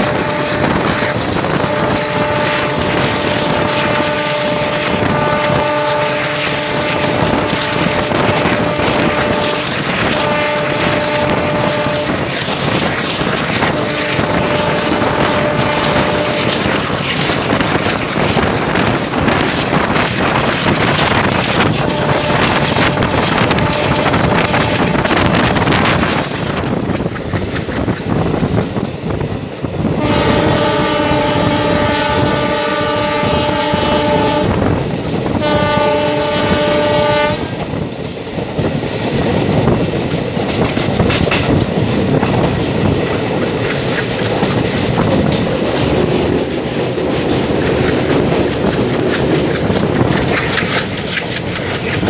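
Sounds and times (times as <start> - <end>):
locomotive horn blasts: 0.0 - 12.3, 13.5 - 16.9, 20.8 - 25.6, 30.0 - 34.7, 35.4 - 37.6
rushing air: 0.0 - 30.6
train running at speed: 0.0 - 52.0
wheels clacking on rails: 0.0 - 52.0.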